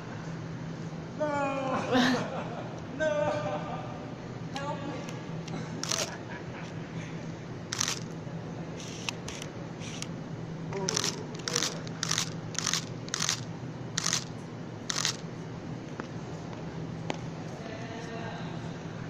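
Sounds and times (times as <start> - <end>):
steady low hum: 0.0 - 19.0
rope hissing through belay device: 8.8 - 10.1.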